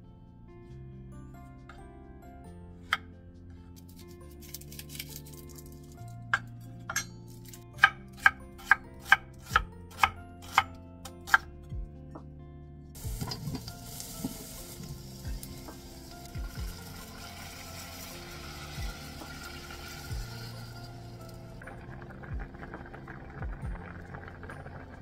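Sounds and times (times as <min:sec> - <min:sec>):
knife chopping onion on wooden board: 0:07.8 - 0:11.5
onions sizzling in butter: 0:13.0 - 0:21.6.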